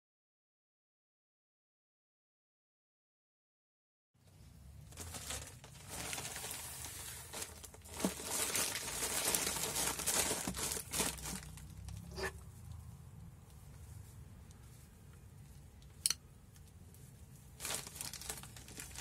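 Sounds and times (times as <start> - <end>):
wrapping crinkling and rustling: 4.8 - 12.8, 16.8 - 19.0.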